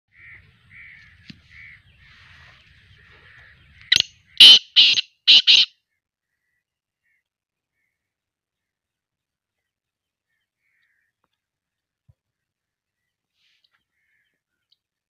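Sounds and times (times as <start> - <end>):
francolin calling harsh grating notes: 3.9 - 5.7.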